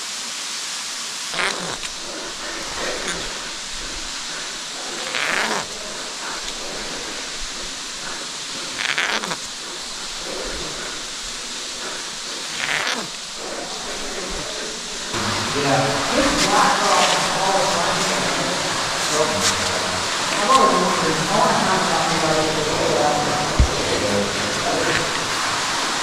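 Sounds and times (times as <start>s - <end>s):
waterfall rushing hiss: 0.0s - 26.0s
scrapes and rustles against rock: 1.3s - 15.2s.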